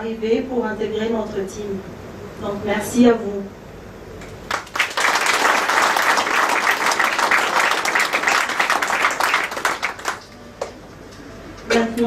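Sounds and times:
audience clapping: 0:04.4 - 0:10.8.

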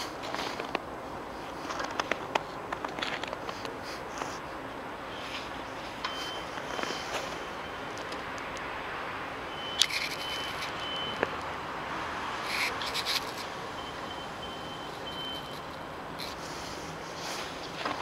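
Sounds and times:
sharp clicks and crackles: 0:01.6 - 0:04.3.

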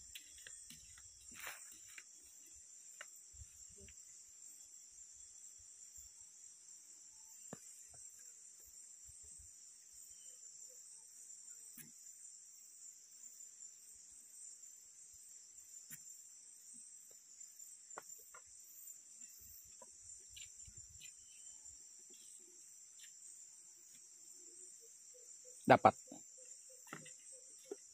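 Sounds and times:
high-pitched insect chorus: 0:00.0 - 0:27.9.

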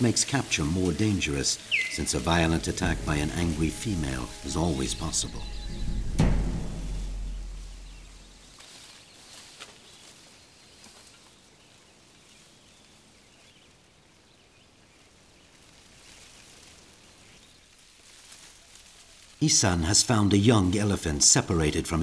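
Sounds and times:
low forest ambience hiss: 0:00.0 - 0:22.0
deep drum note: 0:02.6 - 0:08.5.

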